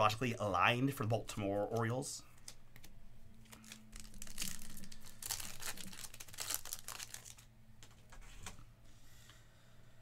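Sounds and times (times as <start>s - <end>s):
wrapper tearing and crinkling: 3.4s - 7.5s.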